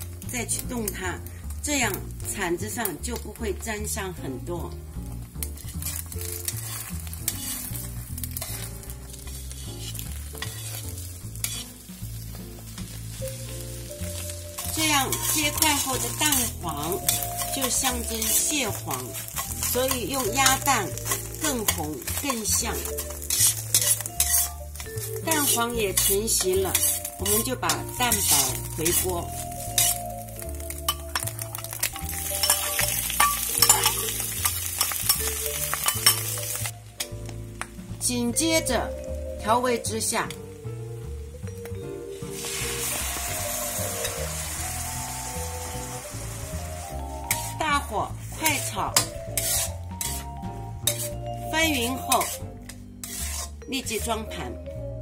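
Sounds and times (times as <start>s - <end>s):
eggs sizzling in oil: 0.0s - 54.2s
soft background music: 0.0s - 55.0s
metal spatula scraping pan: 5.6s - 13.2s, 14.1s - 36.7s, 47.1s - 54.0s.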